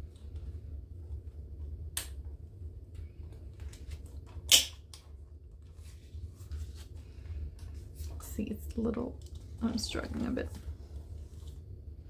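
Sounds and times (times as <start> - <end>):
sharp snap: 4.5 - 4.9.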